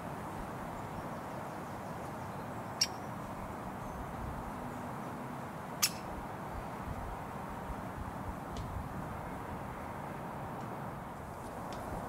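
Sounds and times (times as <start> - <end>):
road traffic hum: 0.0 - 12.0
woodpecker calls: 2.7 - 3.2, 5.8 - 6.2.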